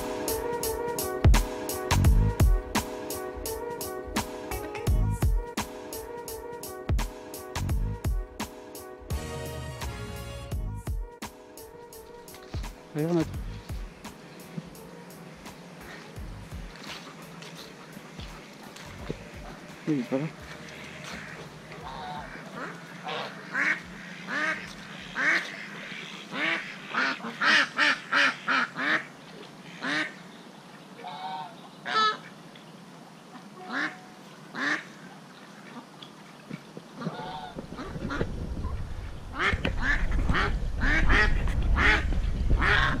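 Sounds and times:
ducks quacking: 12.3 - 30.2, 31.0 - 32.3, 33.3 - 35.1, 37.0 - 43.0
low rumbling noise: 13.2 - 14.1, 15.3 - 16.8.

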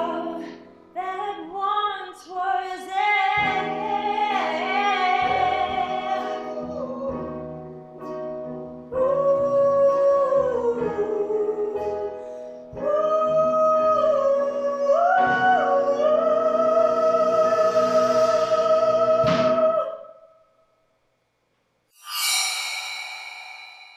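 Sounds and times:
woman singing a slow ballad: 0.0 - 7.4, 8.9 - 20.0
piano: 0.0 - 20.3, 22.0 - 23.9.

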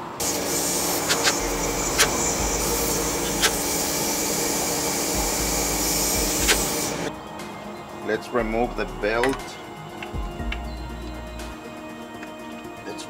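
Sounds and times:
air tool running: 0.0 - 7.1
exhaust air hiss: 0.0 - 9.9
sharp clicks: 1.0 - 2.4, 3.2 - 3.7, 6.2 - 7.1.

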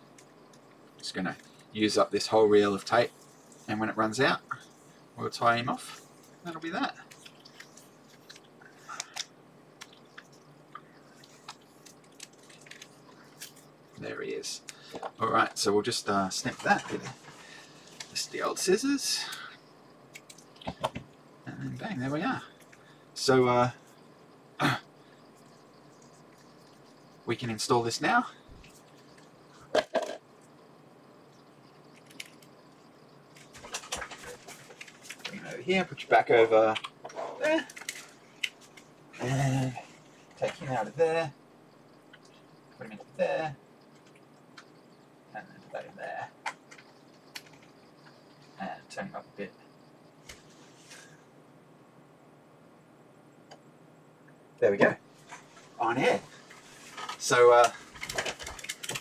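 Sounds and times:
small clicks and rustles: 7.0 - 14.0, 16.6 - 18.2, 20.1 - 21.2, 31.4 - 35.5, 36.7 - 39.0, 43.9 - 44.8, 46.4 - 48.5, 56.3 - 59.0.

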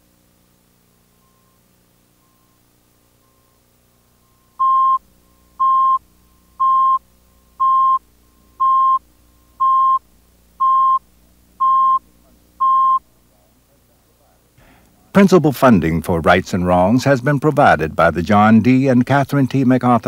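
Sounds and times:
faint steady hum: 0.0 - 20.0
high-pitched tone beeps: 4.2 - 5.0, 5.6 - 6.0, 6.6 - 7.0, 7.6 - 8.0, 8.6 - 9.0, 9.6 - 10.0, 10.6 - 11.0, 11.6 - 12.0, 12.6 - 13.0.

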